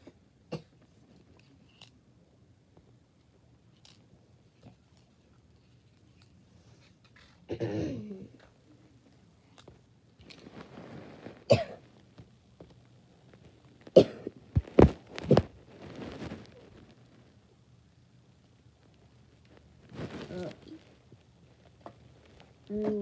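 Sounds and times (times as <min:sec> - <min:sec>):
child coughing: 0:07.5 - 0:08.3, 0:11.5 - 0:11.8, 0:14.0 - 0:14.3.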